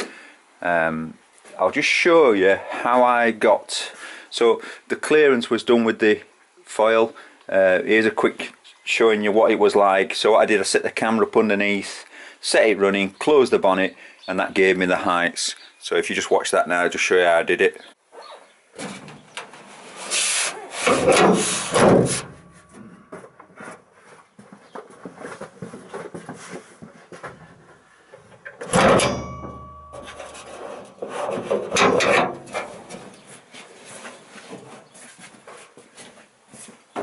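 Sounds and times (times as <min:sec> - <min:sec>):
car bonnet rubbing and scraping: 0:18.8 - 0:22.7, 0:29.9 - 0:35.0
car bonnet thud: 0:20.9 - 0:22.4, 0:28.6 - 0:29.7.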